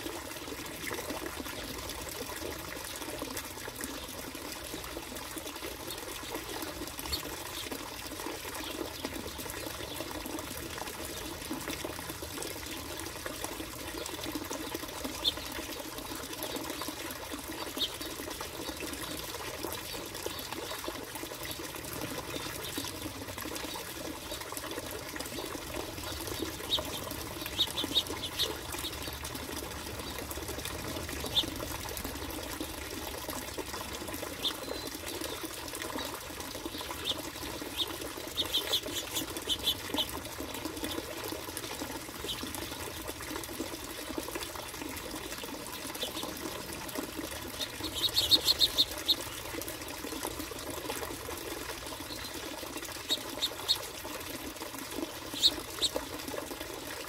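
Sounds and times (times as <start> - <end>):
finches chirping: 47.6 - 49.3, 55.3 - 56.0.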